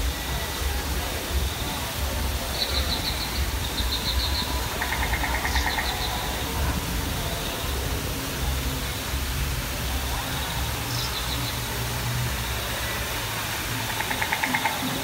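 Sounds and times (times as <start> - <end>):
low rumble and hiss: 0.0 - 15.0.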